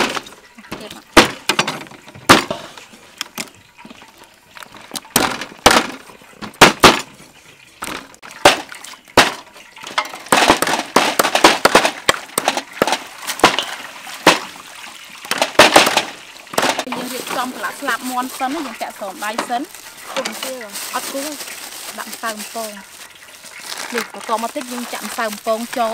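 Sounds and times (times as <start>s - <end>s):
knives chopping on wooden blocks: 10.3s - 14.5s.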